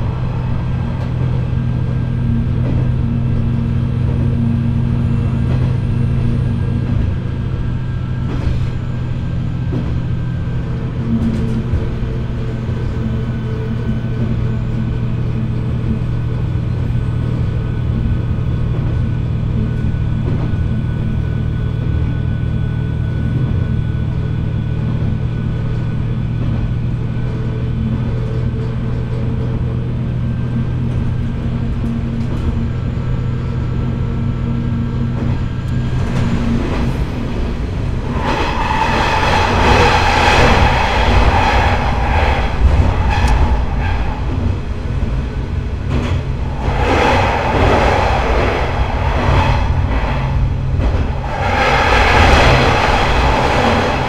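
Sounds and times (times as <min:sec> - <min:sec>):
diesel railcar engine running: 0:00.0 - 0:54.0
steady whining tones: 0:35.2 - 0:54.0.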